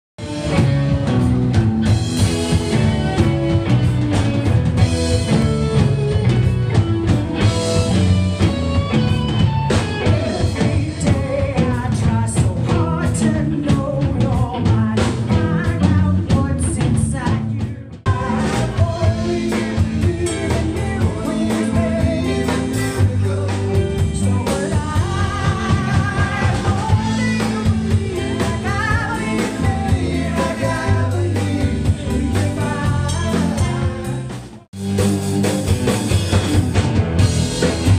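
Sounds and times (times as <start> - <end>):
drums: 0.2 - 37.9
electric guitars: 0.2 - 37.9
person singing: 10.0 - 34.4.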